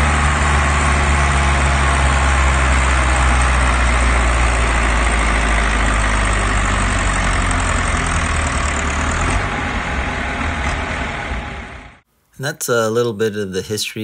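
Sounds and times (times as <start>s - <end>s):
tractor engine under heavy load: 0.0s - 12.2s.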